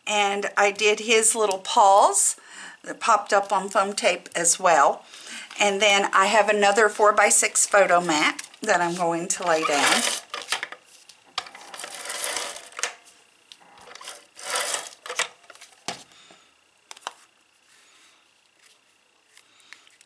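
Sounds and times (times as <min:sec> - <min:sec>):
tape gun rasping: 0:09.0 - 0:10.7, 0:13.9 - 0:15.3.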